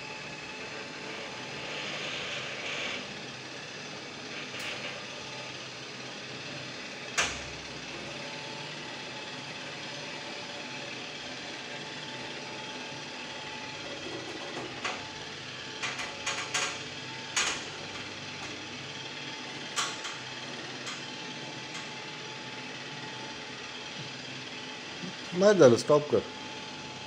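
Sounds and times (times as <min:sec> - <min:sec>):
stairlift drive running: 0:13.6 - 0:23.2.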